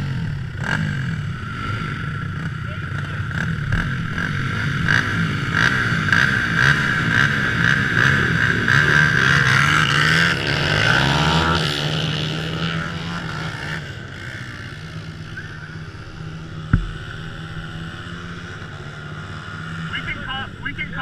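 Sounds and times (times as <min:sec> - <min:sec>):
trike engine passing: 0:00.0 - 0:21.0
sharp knock: 0:16.7 - 0:17.2.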